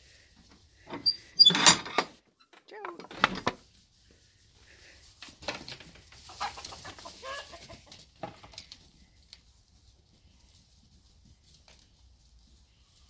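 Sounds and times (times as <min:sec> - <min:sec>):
chickens clucking: 0:05.6 - 0:09.0.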